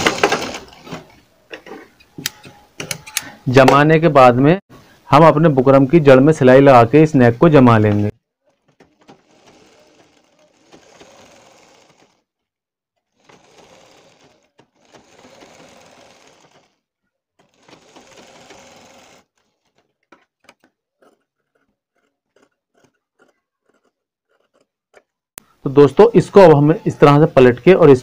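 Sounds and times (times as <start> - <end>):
sewing machine stitching: 0.0 - 1.2, 8.4 - 25.1.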